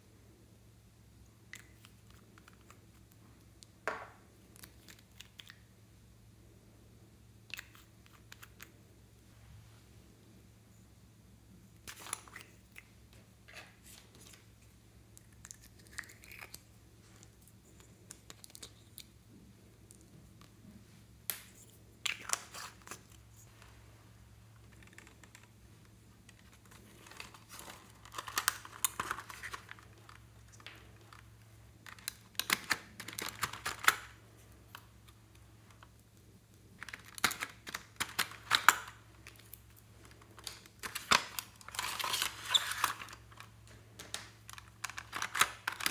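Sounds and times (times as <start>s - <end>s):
plastic crackling and crinkling: 24.5s - 45.9s.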